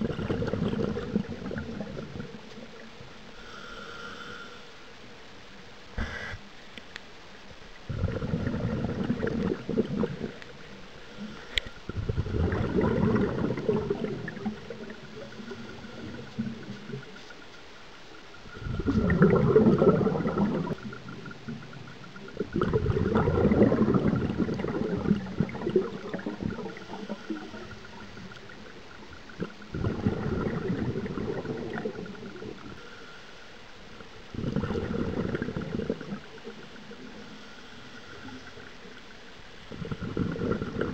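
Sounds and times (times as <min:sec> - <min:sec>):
underwater exhaled bubbles: 0:00.0 - 0:04.5, 0:07.8 - 0:40.9.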